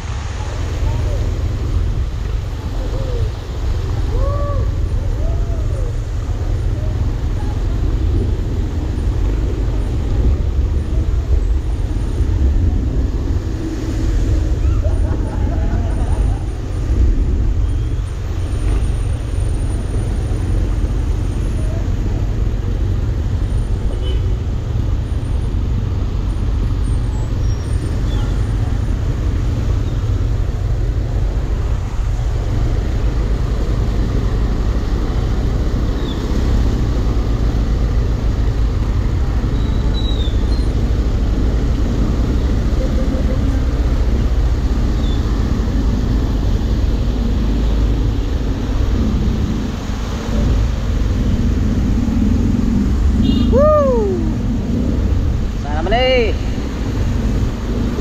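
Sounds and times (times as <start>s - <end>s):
steady low rumble: 0.0s - 35.9s, 40.7s - 58.0s.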